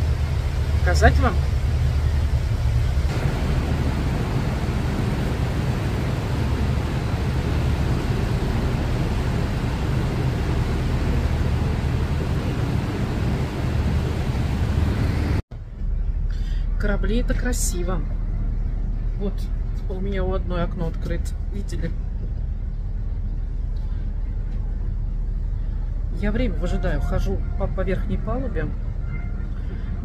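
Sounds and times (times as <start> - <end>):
churning water: 0.0 - 15.4
ship engines rumbling: 0.0 - 30.0.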